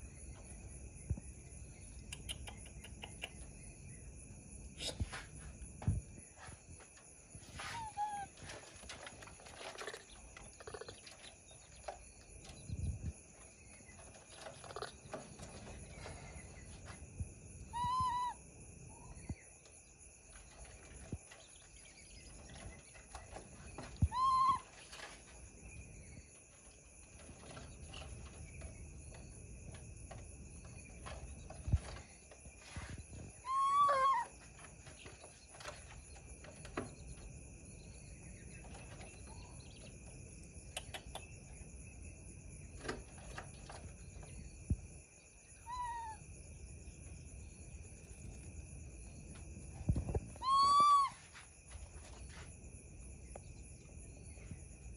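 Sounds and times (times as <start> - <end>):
baby macaque coo calls: 7.7 - 8.3, 17.7 - 18.4, 24.0 - 24.7, 33.4 - 34.3, 45.6 - 46.2, 50.4 - 51.2
faint clicks: 40.7 - 41.3.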